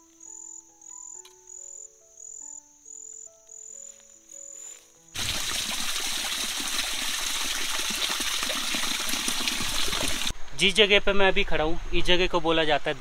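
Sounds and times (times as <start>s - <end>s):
soft background music: 0.0s - 5.2s
cricket chirping: 0.0s - 5.3s
water trickling down rock: 5.2s - 10.3s.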